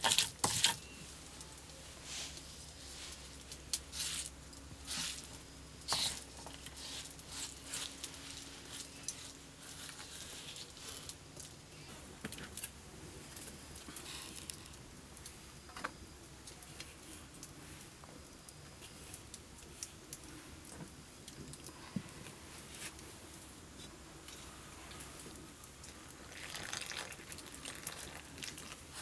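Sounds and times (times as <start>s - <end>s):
flour handled in steel basin: 3.8s - 11.2s.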